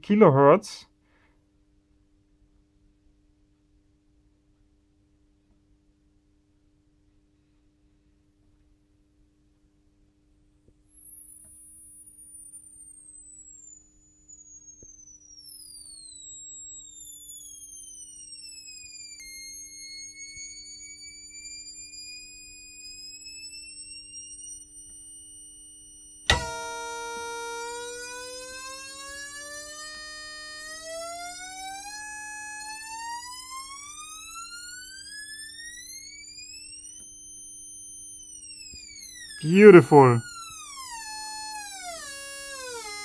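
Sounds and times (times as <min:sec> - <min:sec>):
whistling test tone gliding in pitch: 0:08.0 - 0:11.4, 0:12.0 - 0:42.7.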